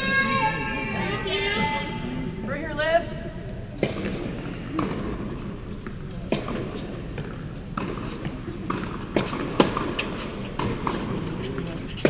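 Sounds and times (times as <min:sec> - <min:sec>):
ball bounces: 0:03.8 - 0:05.2, 0:05.8 - 0:11.8
racket hitting tennis ball: 0:03.8 - 0:11.7.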